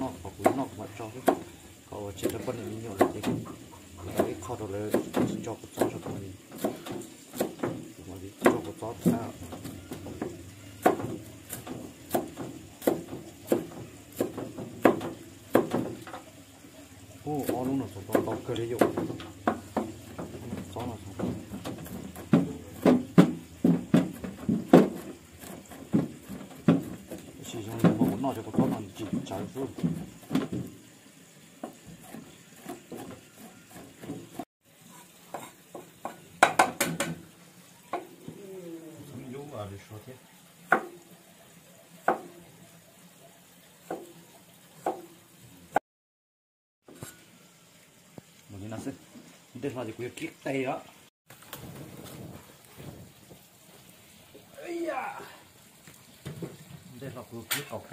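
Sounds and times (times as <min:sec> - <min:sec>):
cleaver chopping on wooden board: 0:00.4 - 0:01.5, 0:02.2 - 0:16.1, 0:17.4 - 0:20.6, 0:21.2 - 0:29.2, 0:35.3 - 0:37.2, 0:40.7 - 0:41.0.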